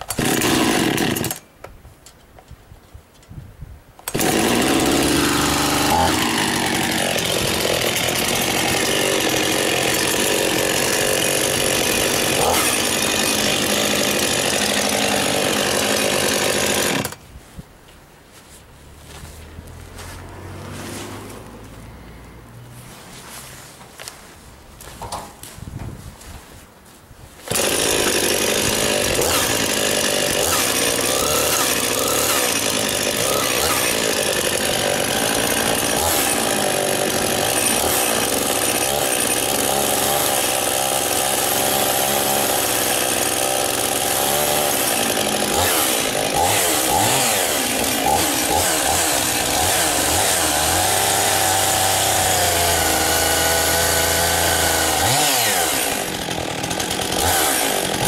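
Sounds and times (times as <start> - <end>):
chainsaw engine running: 0.1 - 1.4, 4.1 - 17.2, 27.5 - 58.0.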